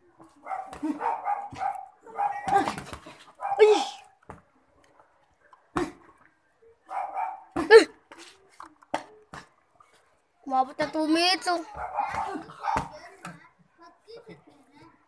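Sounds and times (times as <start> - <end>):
dog barking: 0.4 - 2.6, 3.4 - 3.8, 6.9 - 7.6, 11.7 - 12.9.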